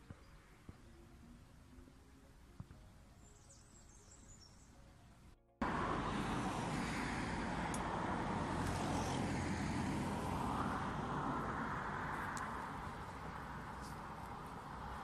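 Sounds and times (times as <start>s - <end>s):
steady outdoor rushing noise: 5.6s - 15.0s.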